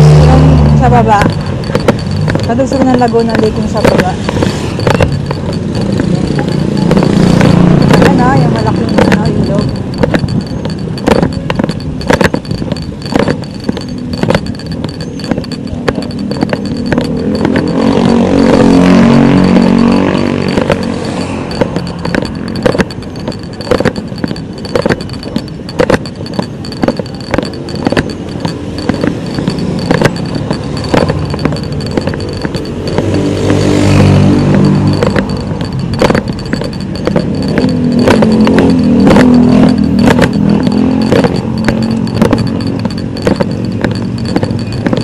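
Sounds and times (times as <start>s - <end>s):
highway traffic passing: 0.0s - 45.0s
sharp repeating click: 0.0s - 45.0s
steady high whine: 0.0s - 45.0s
engine passing close: 16.8s - 22.5s.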